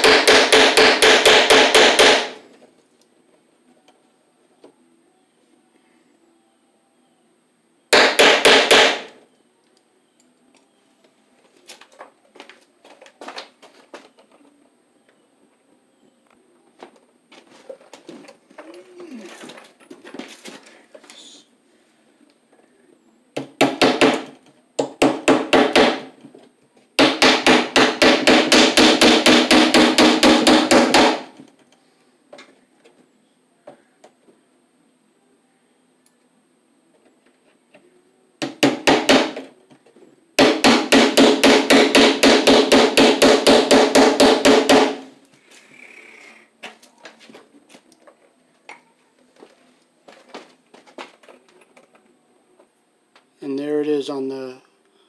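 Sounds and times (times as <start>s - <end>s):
hammer blows on staples: 0.0s - 2.4s, 7.9s - 9.2s, 23.4s - 26.1s, 27.0s - 31.4s, 40.4s - 45.1s
handling and scraping sounds: 16.7s - 22.0s, 45.3s - 52.7s.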